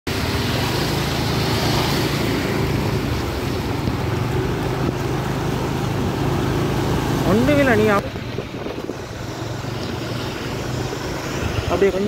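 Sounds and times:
motorbike engines running: 0.1s - 12.0s
water sloshing and splashing: 0.1s - 12.0s
wind on microphone: 7.9s - 10.6s.

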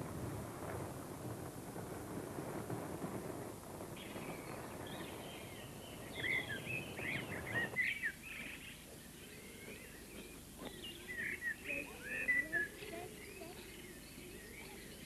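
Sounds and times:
birds chirping and singing: 4.0s - 15.0s.

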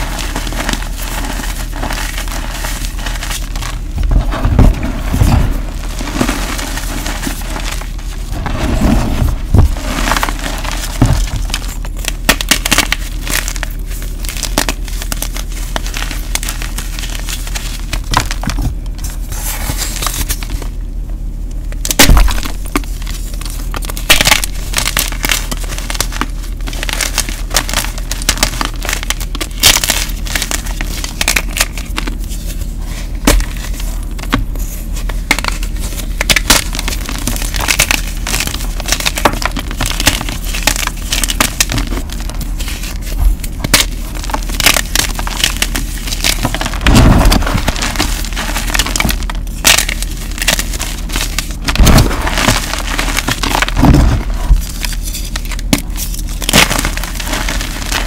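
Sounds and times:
hands crunching chalk: 0.0s - 20.6s, 21.9s - 58.0s
steady low hum: 0.0s - 58.0s.

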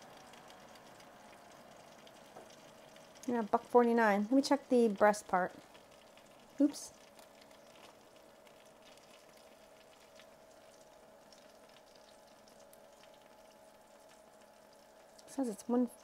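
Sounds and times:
thin steady hum: 0.0s - 16.0s.

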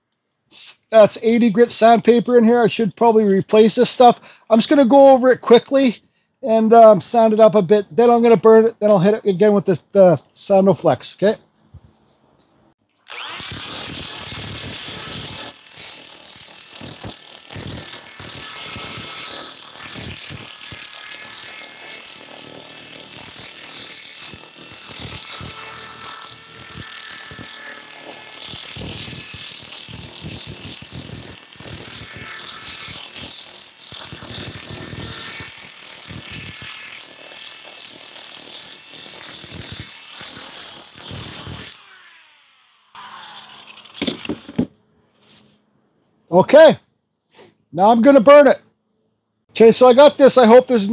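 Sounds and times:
drill motor whine: 13.0s - 44.7s.

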